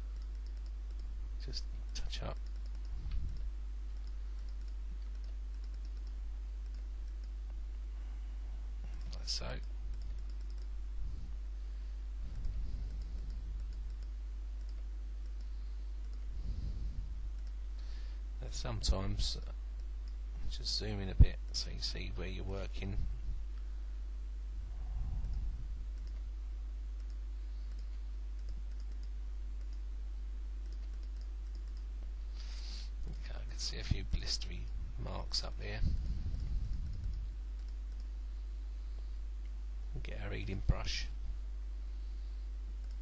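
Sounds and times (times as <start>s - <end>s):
steady low hum: 0.0s - 43.0s
faint computer mouse clicks: 0.1s - 1.1s, 1.9s - 7.4s, 8.9s - 10.7s, 12.8s - 16.3s, 25.2s - 26.2s, 27.0s - 29.8s, 30.6s - 31.9s.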